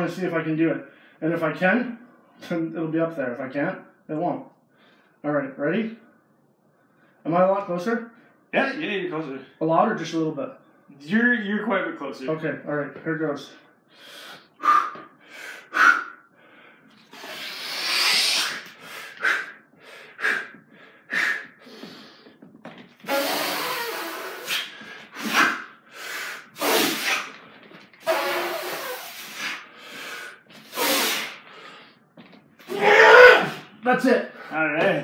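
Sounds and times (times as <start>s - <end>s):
man breathing hard: 13.8s - 22.5s, 23.1s - 27.7s, 29.0s - 32.1s
forceful hissing exhalations: 17.0s - 22.3s, 23.0s - 27.4s, 28.0s - 32.0s.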